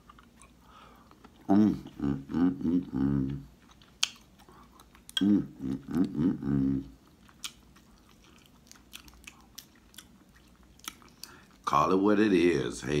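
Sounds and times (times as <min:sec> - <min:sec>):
mouth clicks and chewing: 0:00.0 - 0:11.6
man humming: 0:01.4 - 0:03.5, 0:05.2 - 0:07.0.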